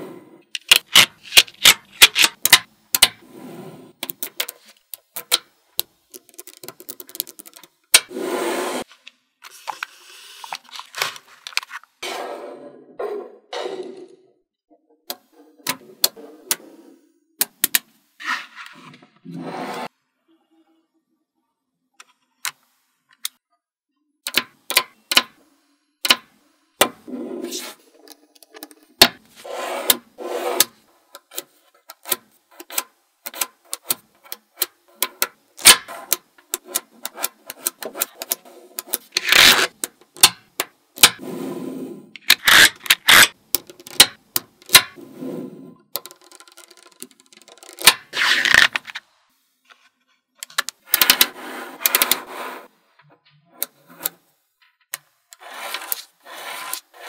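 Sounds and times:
magnetic balls clicking: 4.0 - 8.0, 42.2 - 45.0, 45.9 - 49.0
balls scraping and rattling on table: 6.1 - 14.3, 27.0 - 40.2, 41.0 - 49.1, 49.7 - 57.0.

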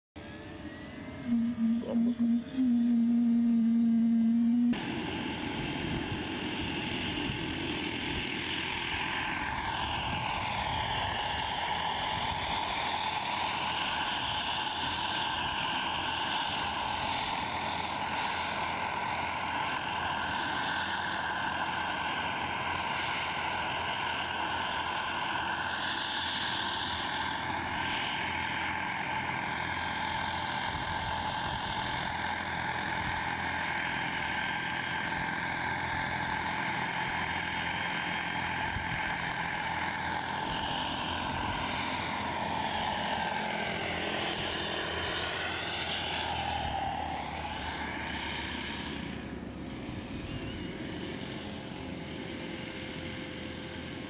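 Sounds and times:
helicopter rotor noise: 0.2 - 54.0
model turbine engine whine: 0.2 - 54.0
loud steady low tone: 0.3 - 5.0.

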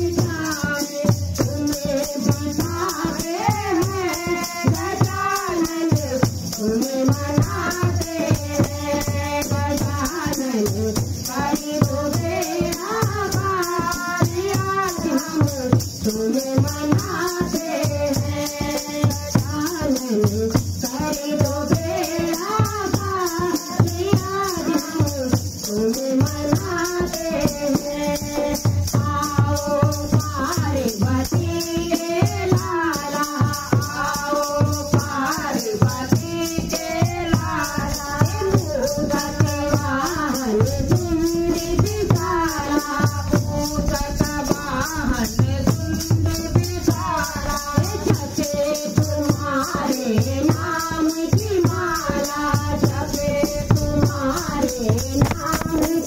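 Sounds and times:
hand drum: 0.0 - 56.0
women singing devotional song: 0.0 - 56.0.

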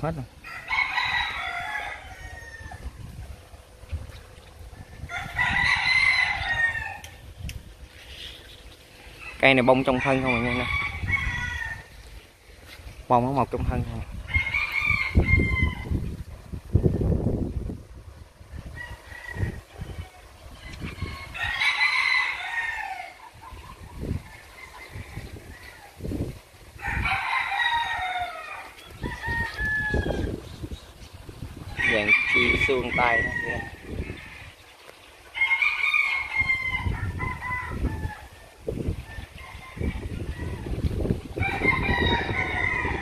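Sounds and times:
rooster crowing: 0.4 - 3.0, 5.0 - 7.2, 9.1 - 12.0, 14.3 - 16.0, 18.5 - 23.4, 24.0 - 26.2, 26.8 - 30.4, 31.7 - 34.7, 35.3 - 43.0.

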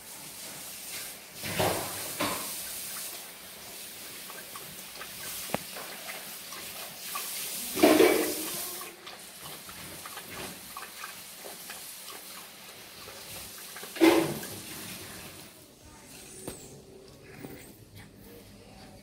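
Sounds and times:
puppy lapping water from metal bowl: 1.4 - 15.5
water sloshing in bowl: 1.4 - 15.6.

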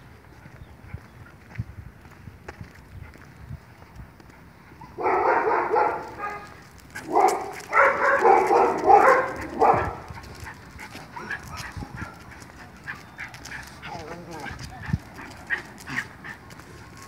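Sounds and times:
dog barking: 4.8 - 10.2.

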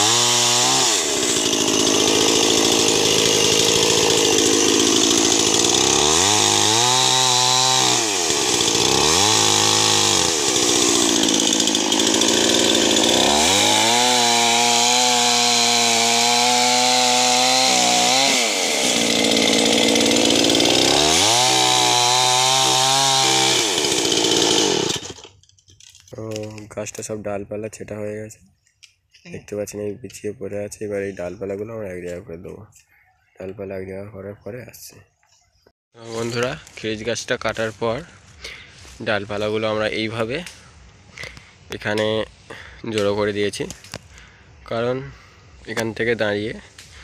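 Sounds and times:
chainsaw cutting wood: 0.0 - 25.4, 46.6 - 47.0.

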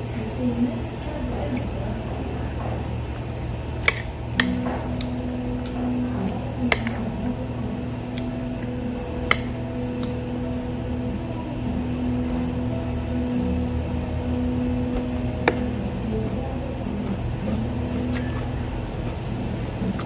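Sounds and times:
machine hum: 0.0 - 20.0
chopsticks clicking on a plate: 3.8 - 5.8, 6.7 - 7.0.

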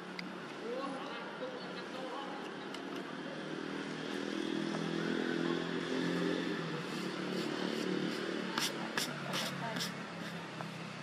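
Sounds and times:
passing vehicle engine hum: 2.5 - 11.0.

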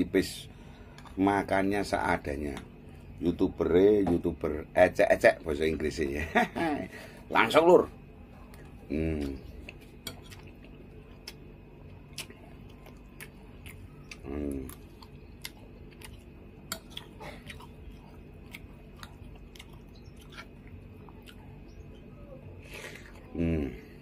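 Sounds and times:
man chewing food: 0.5 - 1.6, 8.2 - 24.0.

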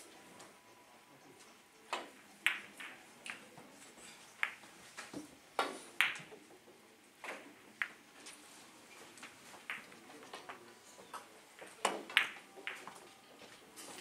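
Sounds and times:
billiard balls clicking together: 1.9 - 3.5, 4.4 - 6.5, 7.2 - 8.4, 9.1 - 14.0.

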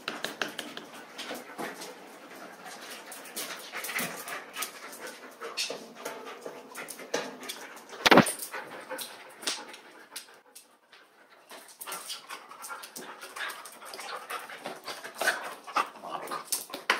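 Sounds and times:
dog claws clicking on tile: 0.0 - 1.5, 2.8 - 16.9
loud sharp sound: 8.0 - 8.3.

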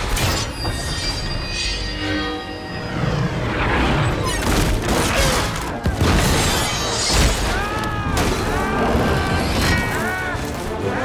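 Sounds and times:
orchestral score: 1.6 - 11.0.

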